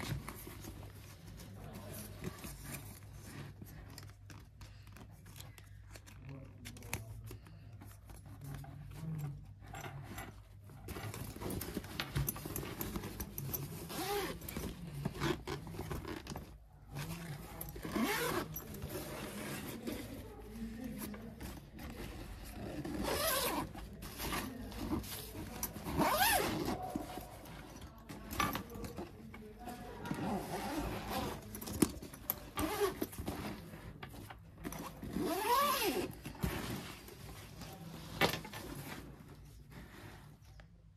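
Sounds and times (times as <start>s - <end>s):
nylon bag rustling: 10.7s - 39.8s
zipper being pulled: 10.9s - 20.2s, 21.8s - 27.8s, 30.0s - 33.8s, 34.6s - 37.0s.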